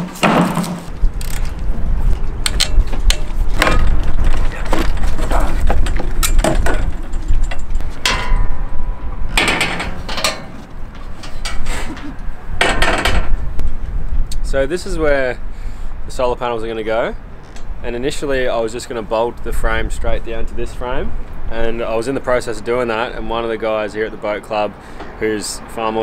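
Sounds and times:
low wind rumble on microphone: 0.9 - 22.4
metallic clicks and knocks: 2.4 - 13.4.

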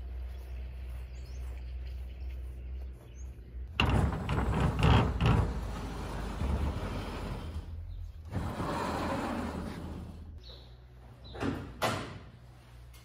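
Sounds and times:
sliding door rumbling and rattling: 3.6 - 10.4.

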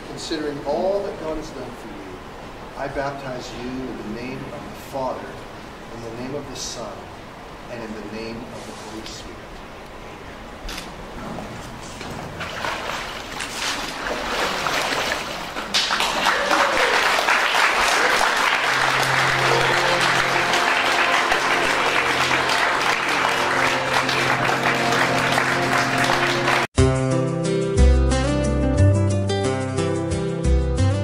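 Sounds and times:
crowd clapping and cheering: 15.6 - 26.7
music with long held notes: 18.5 - 31.0.

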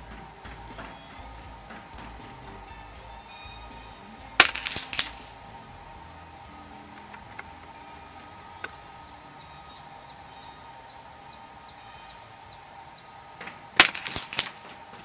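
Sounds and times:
rattle of sharp strokes: 0.0 - 8.2, 13.8 - 14.9
faint high chirping: 0.0 - 13.4
air rifle shot: 4.4 - 5.3, 13.8 - 14.7.

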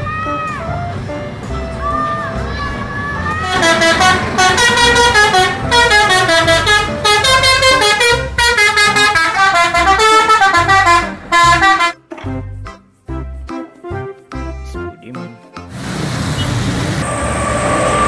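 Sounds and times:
multi-tone musical bus horn: 3.3 - 12.1.

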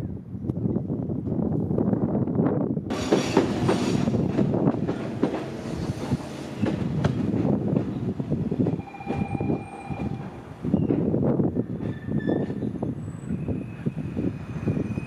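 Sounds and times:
train wheels clattering over rail joints: 2.9 - 12.6.

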